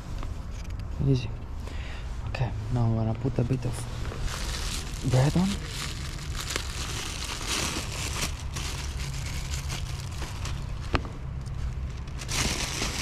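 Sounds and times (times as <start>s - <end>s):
steady low rumble: 0.0s - 13.0s
plastic bag rustling and crinkling: 3.6s - 13.0s.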